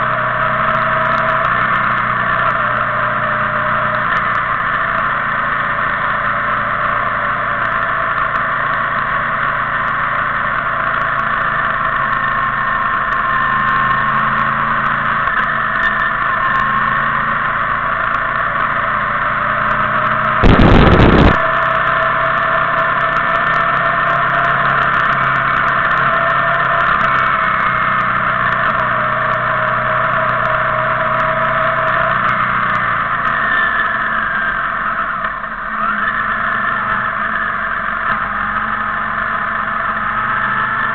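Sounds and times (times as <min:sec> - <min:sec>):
motorcycle engines running: 0:00.0 - 0:40.9
loud blast of noise: 0:20.4 - 0:21.8
rushing noise: 0:20.4 - 0:21.8.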